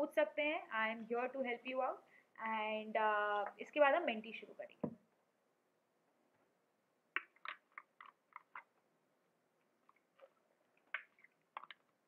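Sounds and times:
person drinking and swallowing: 0:07.2 - 0:08.9, 0:09.6 - 0:12.0.

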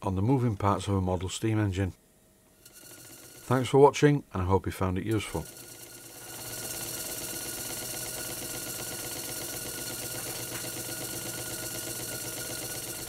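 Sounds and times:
whirr of spinning crankshaft: 0:02.6 - 0:03.7, 0:05.1 - 0:13.0.

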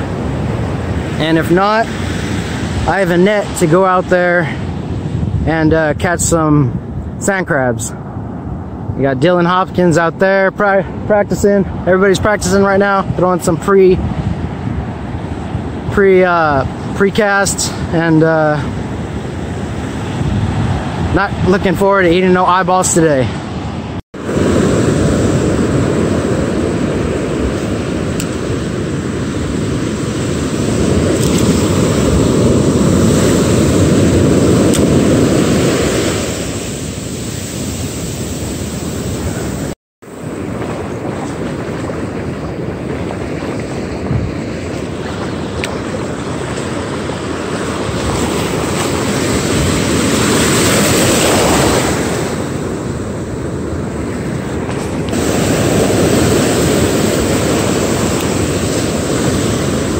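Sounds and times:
ocean surf breaking: 0:00.0 - 0:59.9.

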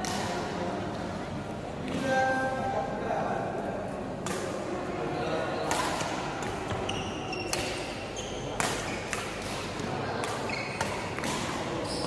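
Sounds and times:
hall hum and chatter: 0:00.0 - 0:12.0
rackets hitting shuttlecock: 0:05.6 - 0:11.8.

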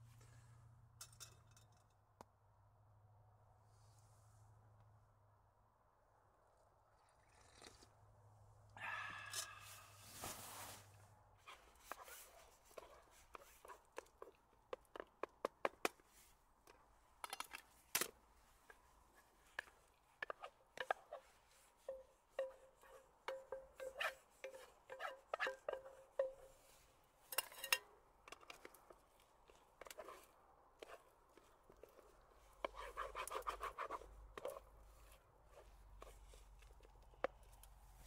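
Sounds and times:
wooden spatula scraping a pot: 0:11.4 - 0:16.3, 0:18.6 - 0:38.0.

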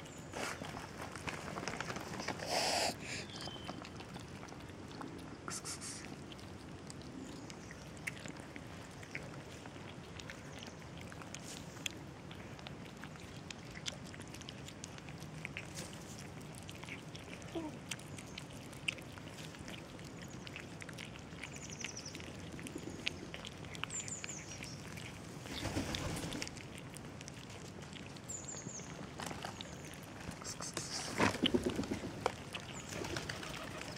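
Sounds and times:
kittens chewing and licking: 0:00.0 - 0:33.9
birds chirping: 0:01.9 - 0:04.0, 0:21.4 - 0:25.7, 0:28.2 - 0:30.1.

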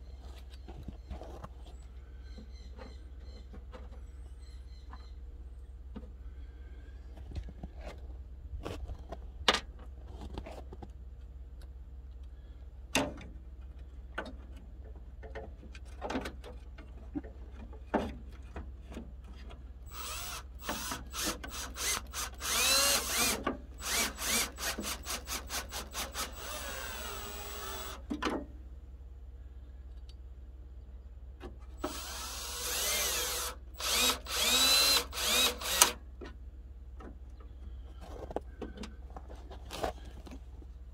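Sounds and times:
cordless drill whining: 0:19.9 - 0:28.0, 0:31.8 - 0:36.0.

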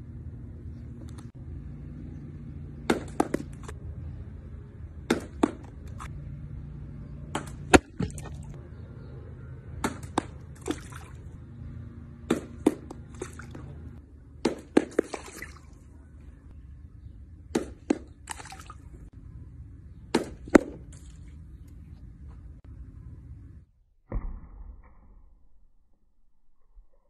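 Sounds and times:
golf club hitting ball: 0:02.8 - 0:03.8, 0:07.3 - 0:08.5
ball splashing into pool: 0:07.3 - 0:08.6, 0:09.8 - 0:11.4, 0:12.3 - 0:15.8, 0:17.5 - 0:19.0.

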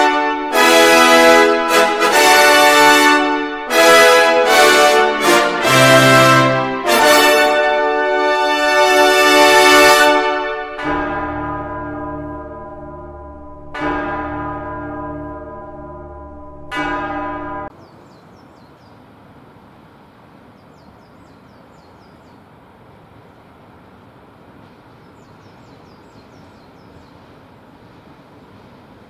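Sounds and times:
bell tolling: 0:10.0 - 0:17.7
faint outdoor hiss: 0:17.7 - 0:29.0.

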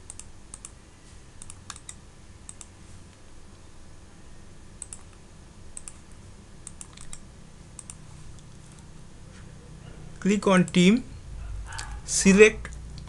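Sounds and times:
computer mouse clicking: 0:00.0 - 0:00.8, 0:01.4 - 0:02.8, 0:04.8 - 0:05.2, 0:05.8 - 0:06.0, 0:06.6 - 0:07.2, 0:07.8 - 0:08.8
faint low hum: 0:00.0 - 0:13.0.

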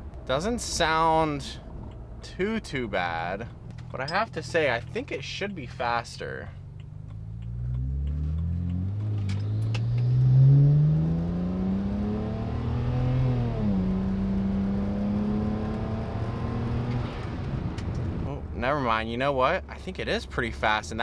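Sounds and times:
car engine accelerating hard: 0:06.6 - 0:18.3.

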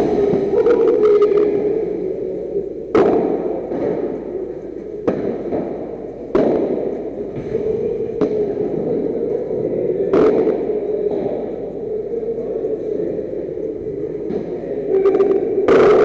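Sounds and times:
steady hum: 0:00.0 - 0:16.0
ball striking rackets: 0:05.0 - 0:07.6.

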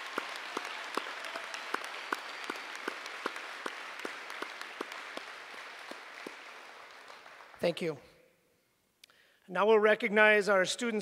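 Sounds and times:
audience applause: 0:00.0 - 0:07.9
close steady hand claps: 0:00.0 - 0:08.0.

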